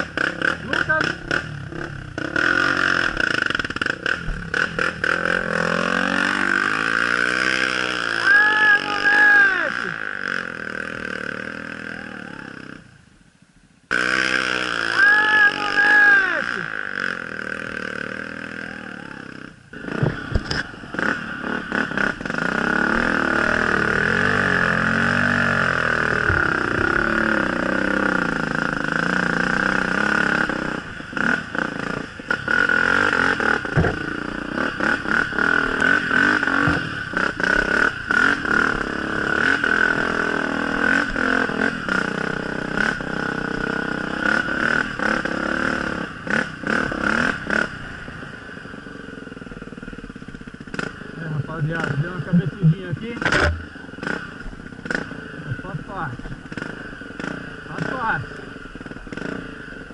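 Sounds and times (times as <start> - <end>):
dirt bike engine revving: 0.0 - 12.9, 13.9 - 59.9
bike clattering over rough ground: 33.6 - 34.3.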